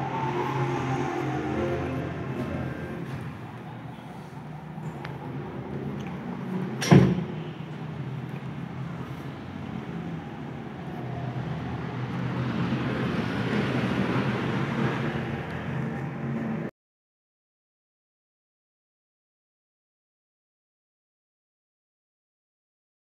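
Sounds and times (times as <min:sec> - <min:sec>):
low rumbling: 0:00.0 - 0:07.4.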